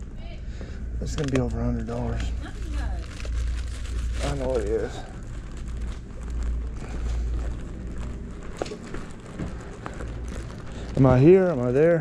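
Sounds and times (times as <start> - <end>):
camera handling rumble: 5.2 - 11.2.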